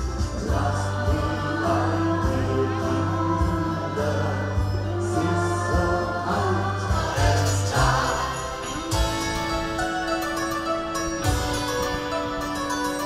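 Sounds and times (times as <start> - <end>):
choir singing: 0.0 - 10.1
bass line and sustained chords: 0.0 - 13.0.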